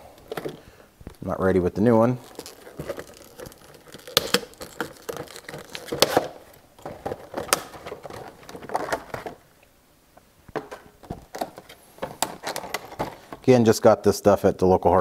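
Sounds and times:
packaging crinkling and tearing: 1.8s - 9.4s, 11.0s - 13.4s.

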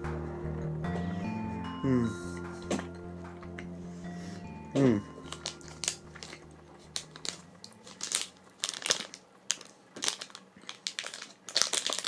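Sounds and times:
wrapper crinkling: 5.2s - 12.0s.

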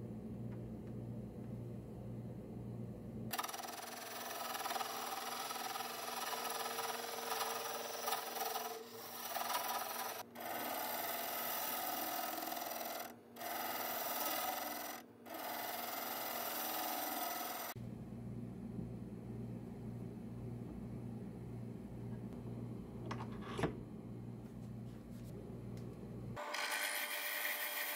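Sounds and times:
lathe tool cutting wood: 3.4s - 17.8s.

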